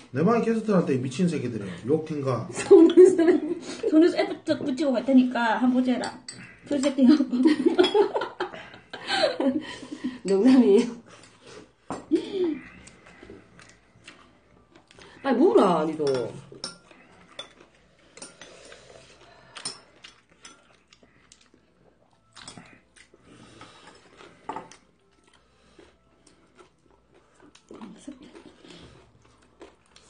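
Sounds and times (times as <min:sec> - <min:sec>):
utensils clattering: 0:05.8 - 0:08.4
chopsticks clicking against dishes: 0:19.5 - 0:21.5.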